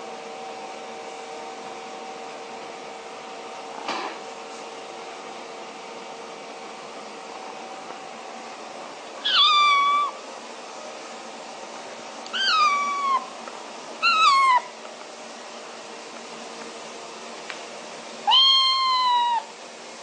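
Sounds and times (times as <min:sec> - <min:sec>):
steady background hum: 0:00.0 - 0:20.0
kitten meowing: 0:09.2 - 0:10.2, 0:12.3 - 0:13.3, 0:14.0 - 0:14.7, 0:18.3 - 0:19.5.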